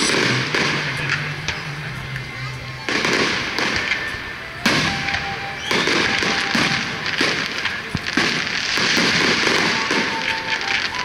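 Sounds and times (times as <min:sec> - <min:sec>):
fireworks bangs: 0:00.0 - 0:11.0
fireworks crackling and pops: 0:00.0 - 0:11.0.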